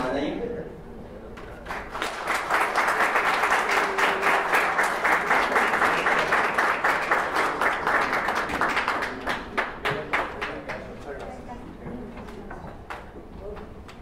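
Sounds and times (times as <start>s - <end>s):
audience applauding: 1.6s - 10.9s.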